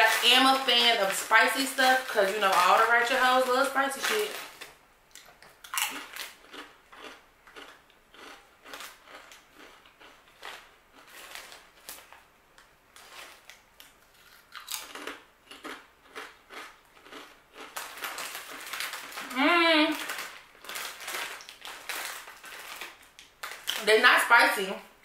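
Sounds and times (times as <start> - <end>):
crunching potato chips: 0.0 - 24.0.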